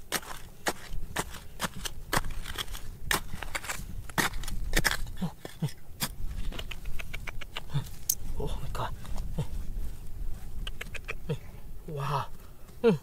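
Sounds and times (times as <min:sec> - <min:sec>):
hand tool chipping rock: 0:00.0 - 0:08.2.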